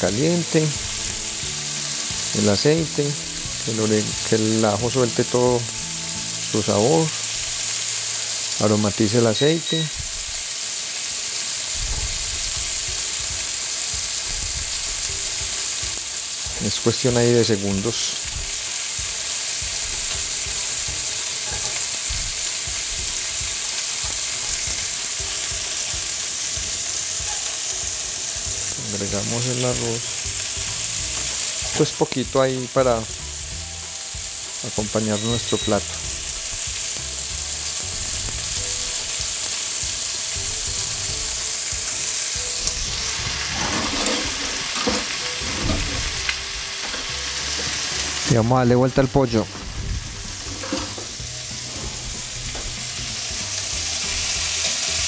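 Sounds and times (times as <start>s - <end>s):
oil sizzling in a frying pan: 0.0s - 55.0s
stirring scrapes: 43.5s - 44.7s.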